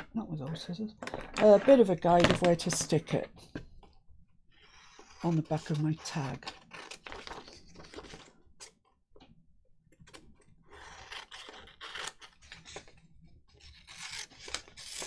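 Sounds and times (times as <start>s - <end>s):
scissors cutting paper: 4.8s - 8.8s, 10.1s - 15.0s.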